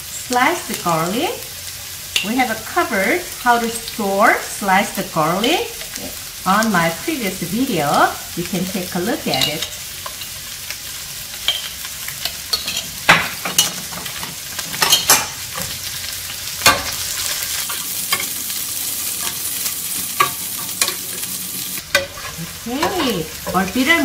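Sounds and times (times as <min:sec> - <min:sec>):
vegetables sizzling in oil: 0:00.0 - 0:24.0
metal spoon scraping pan: 0:11.4 - 0:15.8, 0:19.1 - 0:24.0.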